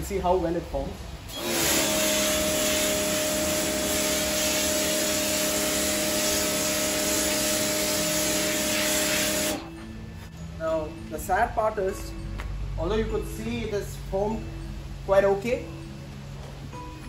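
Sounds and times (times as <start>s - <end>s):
foam spraying hiss: 1.3s - 9.7s
pressure washer motor hum: 1.3s - 9.7s.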